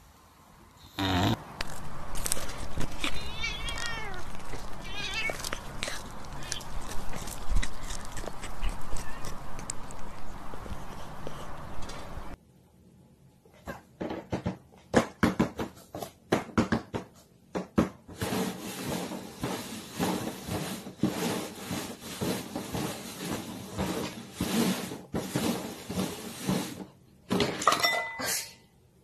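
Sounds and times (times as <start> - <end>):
cups scraping on cardboard: 18.1 - 26.9.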